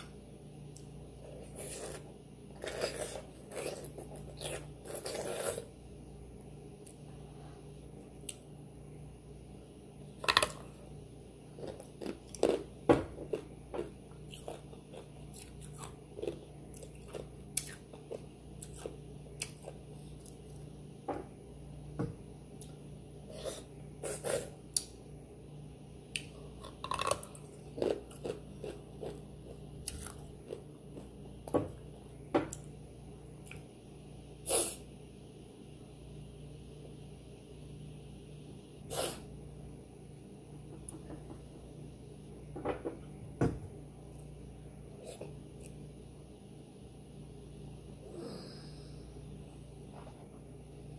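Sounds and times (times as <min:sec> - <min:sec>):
person chewing crunchy food: 0:01.2 - 0:05.7, 0:11.5 - 0:20.7, 0:26.2 - 0:31.2.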